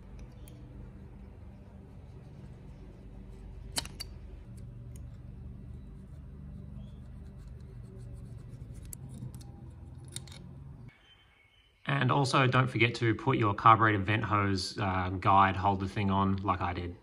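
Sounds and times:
steady low hum: 0.0 - 10.9.

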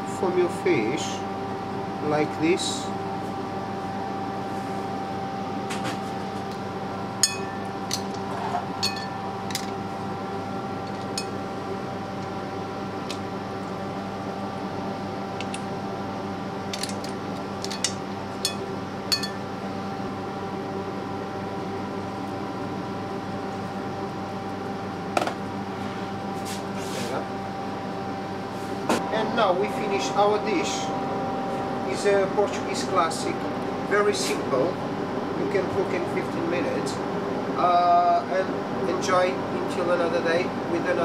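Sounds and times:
kitchen machine hum: 0.0 - 41.0
shells and tongs clinking on dishes: 8.8 - 9.7, 16.8 - 19.4.

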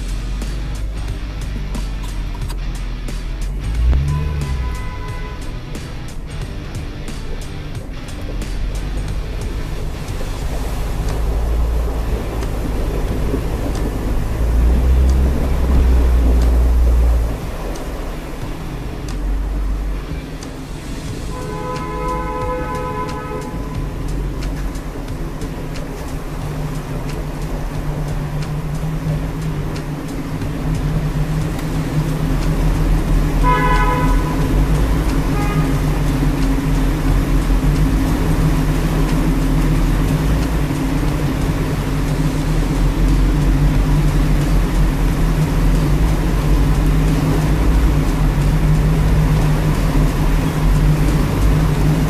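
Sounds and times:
car engine running: 0.0 - 52.0
car horn toots: 3.8 - 6.3, 21.3 - 24.4, 33.2 - 38.0.

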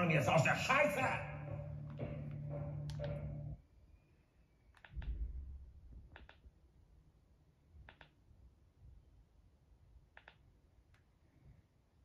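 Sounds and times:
low thump: 5.0 - 5.6.

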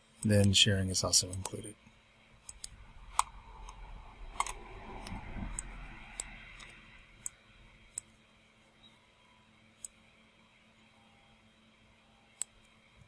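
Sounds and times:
faint low rumble of hand movement: 0.7 - 9.1
computer mouse clicking: 2.4 - 3.3.

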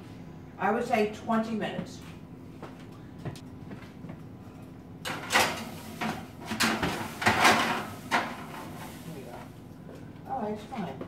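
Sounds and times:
metal sheet scraping on oven rack: 5.1 - 9.4.

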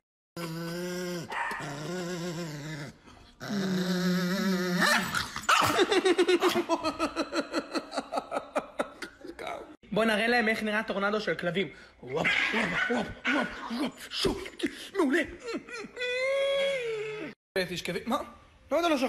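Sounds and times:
small dog growling: 0.4 - 5.5.

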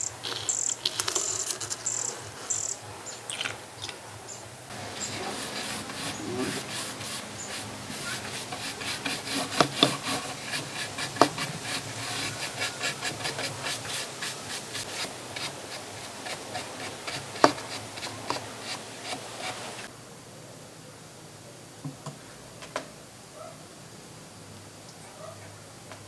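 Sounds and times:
brush knocking against wood: 4.7 - 19.6
paintbrush scrubbing on wood: 4.7 - 19.9.

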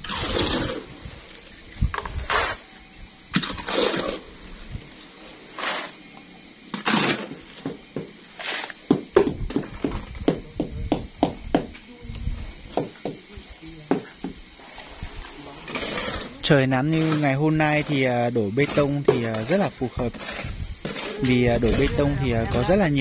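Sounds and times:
sharp knocks: 6.7 - 8.2, 8.9 - 11.8, 12.7 - 13.2, 13.9 - 14.4
voices talking: 9.6 - 23.0.

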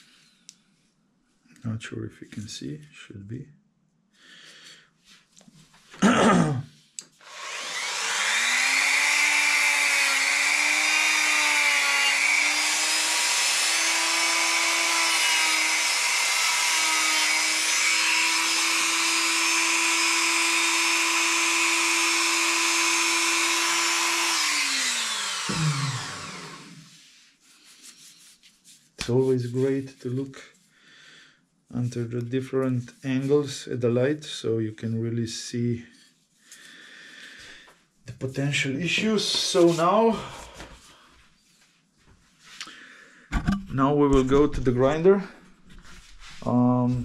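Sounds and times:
rotary tool whining: 7.2 - 26.9.

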